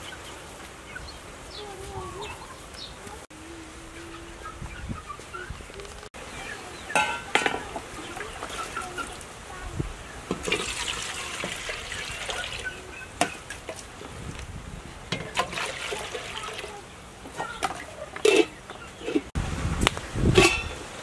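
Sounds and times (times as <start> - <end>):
water pouring into a pot: 10.4 - 12.8, 15.4 - 16.8.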